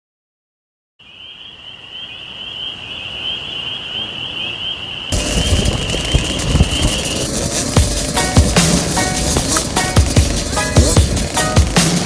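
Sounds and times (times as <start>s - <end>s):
high trilling tone: 2.4s - 11.6s
music with drum beat: 5.2s - 12.0s.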